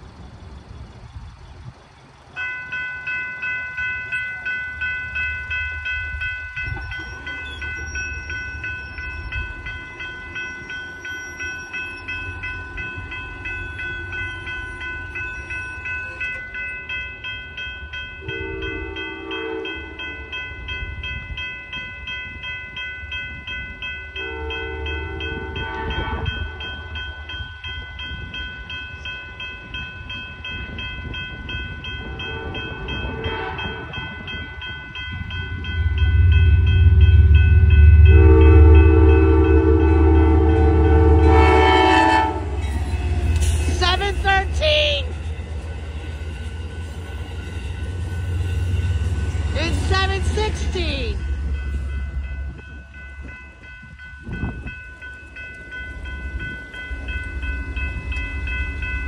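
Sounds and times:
crossing bell ringing: 0.0 - 59.0
train rumble: 0.0 - 59.0
train horn blasts: 18.2 - 20.1, 24.2 - 27.0, 32.1 - 34.0, 37.6 - 44.4.

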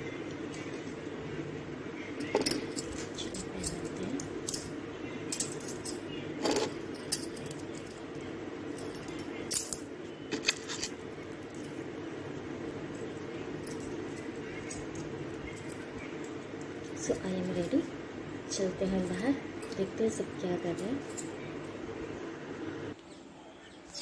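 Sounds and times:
low background hum: 0.0 - 24.0
small hard objects clinking: 5.3 - 17.8.

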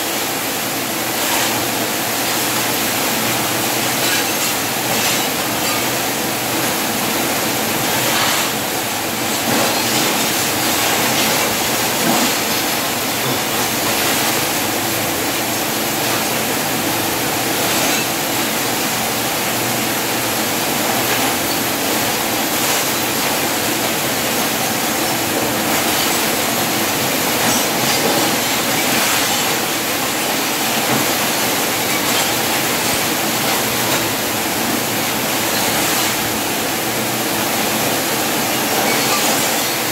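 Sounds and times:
welding arc sizzling and crackling: 0.0 - 39.9.

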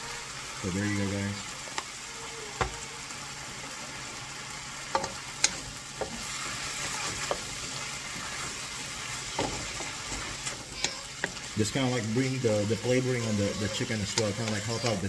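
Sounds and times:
chicken and onion sizzling: 0.0 - 15.0
wooden spoon knocking a pan: 9.2 - 11.4.

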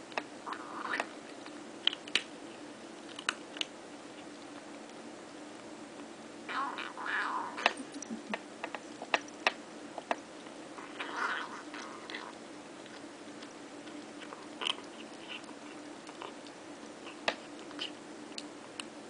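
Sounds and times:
kitten crunching kibble: 0.1 - 6.1, 7.6 - 18.8
kitten rough noises: 0.4 - 1.2, 6.5 - 8.3, 10.7 - 12.4.

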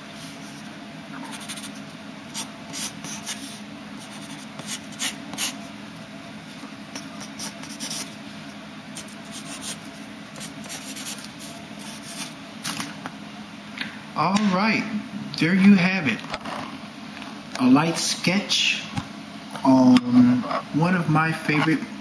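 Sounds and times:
steady low hum: 0.0 - 22.0
pencil scratching on paper: 1.2 - 5.6, 7.2 - 8.1, 9.0 - 9.8, 10.4 - 12.3.

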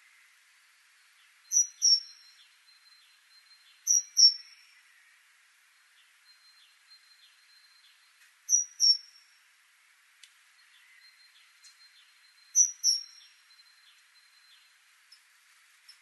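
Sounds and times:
great tit singing: 0.8 - 9.3, 10.5 - 15.3.

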